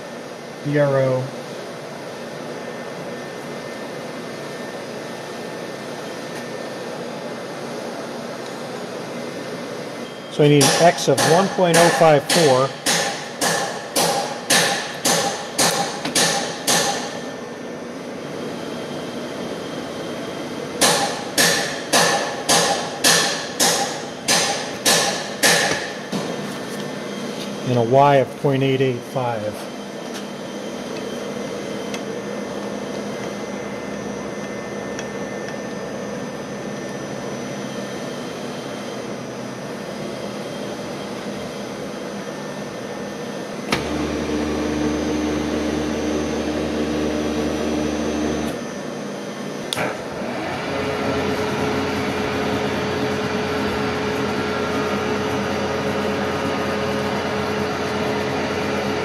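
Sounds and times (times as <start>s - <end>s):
milling machine motor humming: 43.6s - 49.0s, 49.6s - 59.0s.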